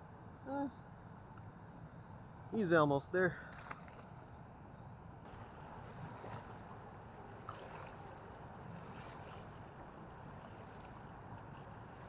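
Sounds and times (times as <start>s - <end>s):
wind: 0.0s - 12.0s
water lapping against bank: 5.2s - 12.0s.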